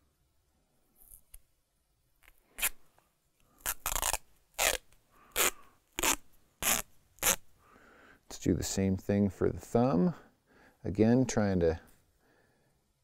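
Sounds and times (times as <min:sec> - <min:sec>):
tape ripping off roll: 0:03.6 - 0:07.4.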